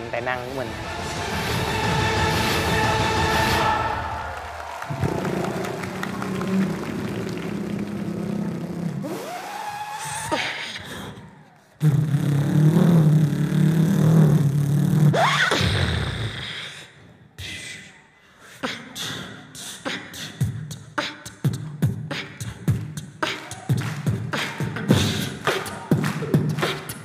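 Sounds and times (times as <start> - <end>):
vocal bass drone: 4.9 - 16.8
beatboxed vocal drum hits: 11.8 - 16.8, 18.6 - 27.0.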